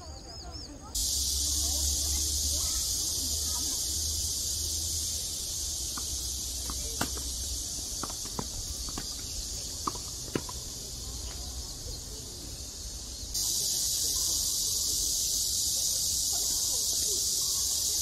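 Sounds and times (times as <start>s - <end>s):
insects chorus: 0.0s - 18.0s
tennis balls struck by rackets: 5.8s - 11.5s.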